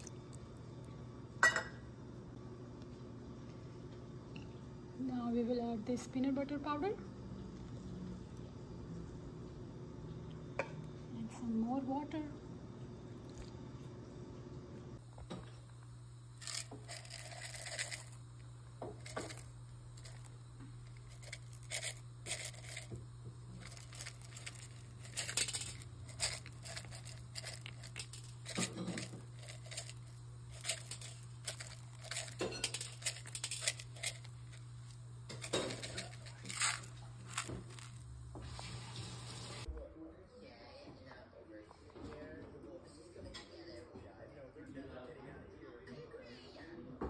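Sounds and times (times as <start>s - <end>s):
rustling and crinkling of cups: 0.0s - 0.5s, 15.0s - 39.7s
steady low hum: 0.0s - 39.9s.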